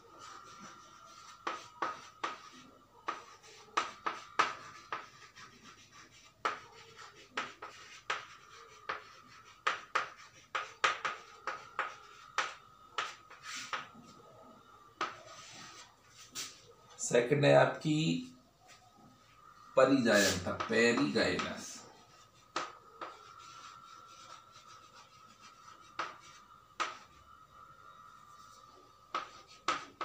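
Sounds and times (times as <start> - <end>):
chalk tapping on blackboard: 0.2 - 14.0, 15.0 - 16.5, 20.0 - 27.2, 29.1 - 30.0
faint steady whine: 17.8 - 30.0.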